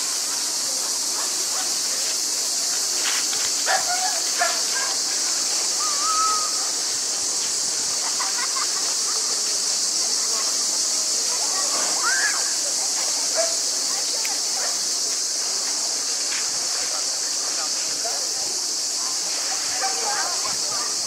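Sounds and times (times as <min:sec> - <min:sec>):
high-pitched hiss: 0:00.0 - 0:21.0.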